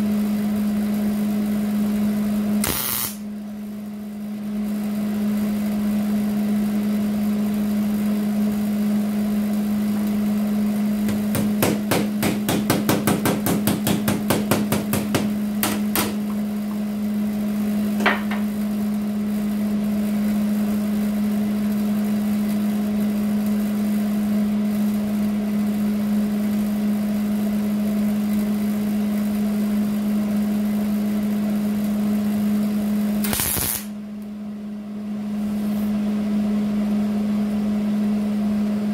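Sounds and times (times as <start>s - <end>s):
steady low hum: 0.0s - 21.8s
welding arc hiss: 2.5s - 3.3s, 10.9s - 16.8s, 33.1s - 34.0s
fast sharp taps on metal: 11.1s - 16.2s.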